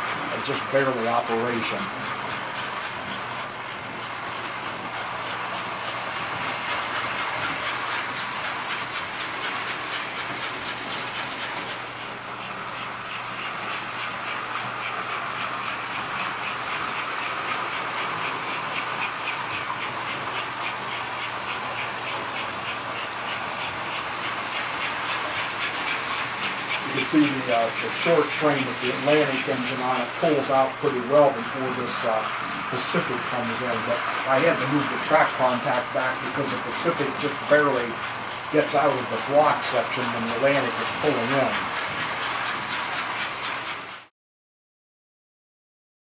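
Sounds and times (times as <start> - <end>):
model train motors whirring: 0.0 - 44.1.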